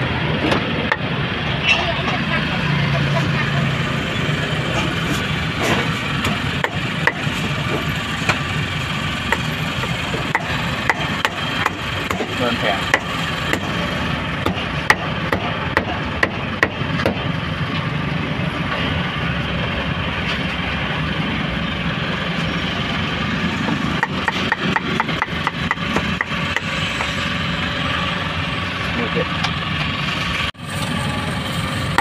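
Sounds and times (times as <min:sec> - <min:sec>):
cleaver chopping meat on wood: 0:06.6 - 0:07.3, 0:09.3 - 0:13.8, 0:14.4 - 0:17.2, 0:24.0 - 0:26.7.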